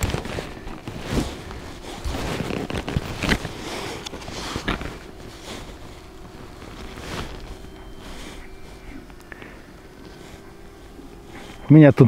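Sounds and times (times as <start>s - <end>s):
foam box rustling: 0.0s - 11.6s.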